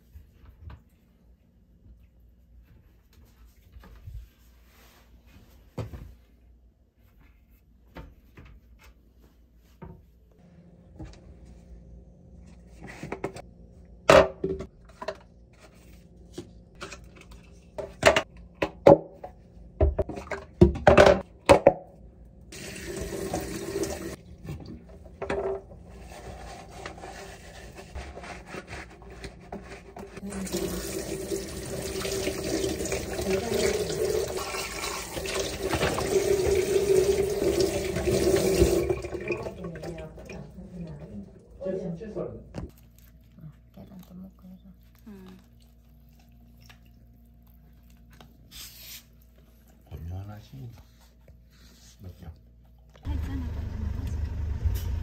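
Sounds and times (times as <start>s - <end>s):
tap water running: 22.5s - 25.4s, 29.6s - 41.2s.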